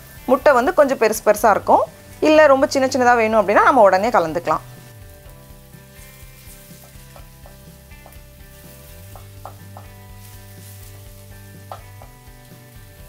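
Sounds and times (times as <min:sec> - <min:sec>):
food sizzling in a skillet: 0:00.0 - 0:13.0
spatula tapping and scraping pan: 0:06.0 - 0:12.6.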